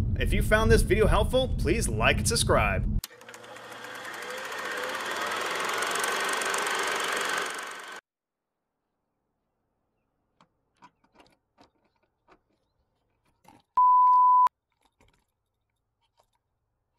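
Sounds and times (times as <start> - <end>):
censor bleep: 13.8 - 14.5.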